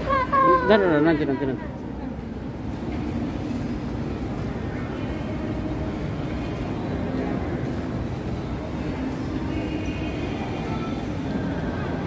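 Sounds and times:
shopping mall background noise: 0.0s - 12.0s.

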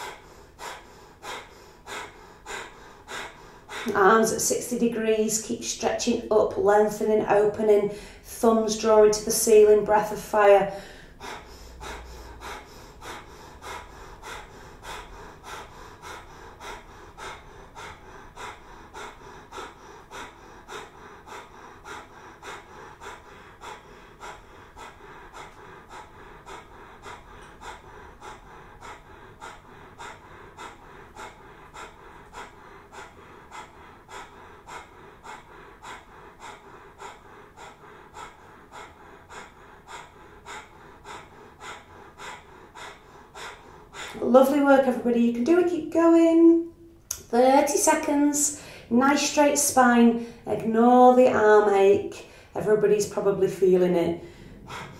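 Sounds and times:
woman's rapid nasal exhalations: 0.0s - 4.8s.

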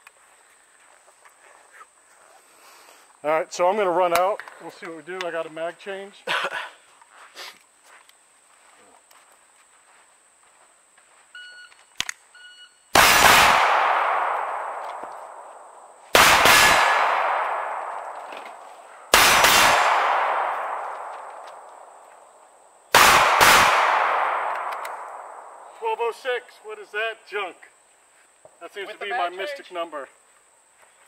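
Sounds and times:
pistol shots with echo: 13.0s - 22.0s, 22.9s - 25.7s.

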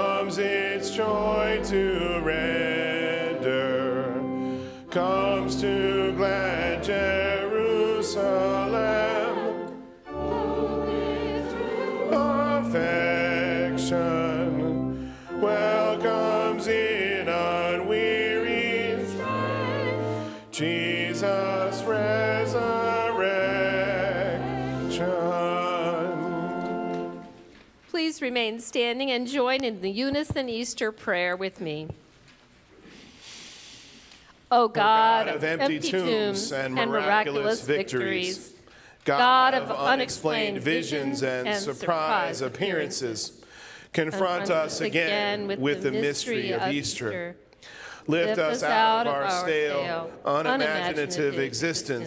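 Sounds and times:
choir singing a hymn: 0.0s - 27.4s, 34.8s - 47.3s, 48.0s - 52.0s
instrumental accompaniment low notes: 0.0s - 27.4s.

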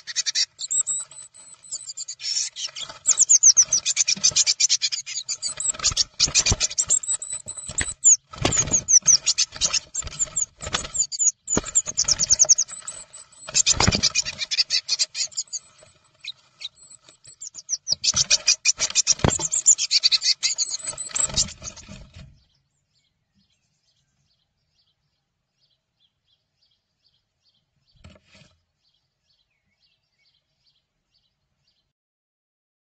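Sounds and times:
birds scuffling: 0.0s - 22.4s
birds chattering harshly: 0.0s - 22.6s
wings thumping against wooden box: 5.5s - 12.8s, 13.5s - 14.4s, 18.1s - 19.6s.

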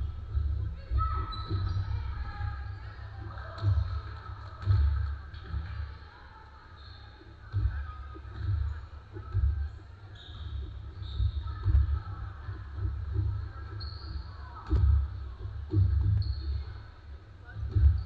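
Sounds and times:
sneakers squeaking on court: 0.0s - 3.9s, 6.6s - 17.0s.

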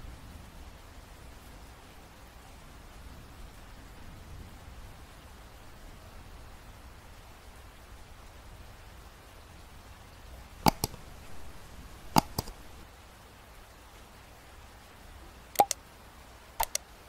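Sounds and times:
faint steady hiss: 0.0s - 17.0s
double mouse clicks: 10.7s - 11.5s, 12.1s - 12.8s, 15.6s - 15.8s, 16.6s - 16.8s.

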